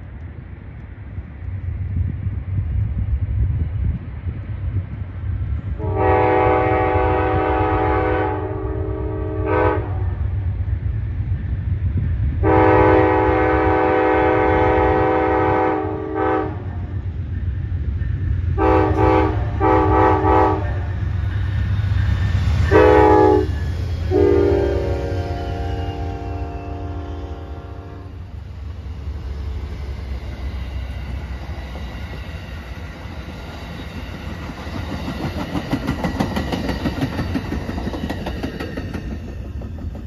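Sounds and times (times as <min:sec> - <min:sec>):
locomotive air horn blasts: 0:05.8 - 0:10.2, 0:12.4 - 0:16.9, 0:18.6 - 0:21.0, 0:22.6 - 0:28.3
train wheels clattering on rails: 0:16.5 - 0:26.8, 0:28.2 - 0:40.0.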